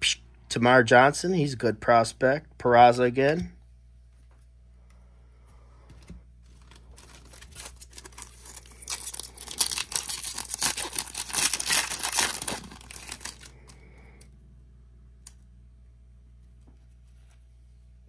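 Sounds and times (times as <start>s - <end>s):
foil wrapper tearing and crinkling: 6.5s - 13.7s.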